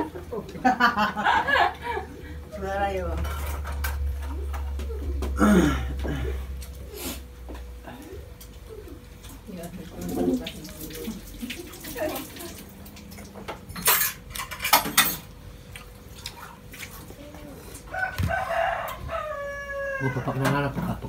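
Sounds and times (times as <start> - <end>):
rooster crowing: 17.9 - 21.0.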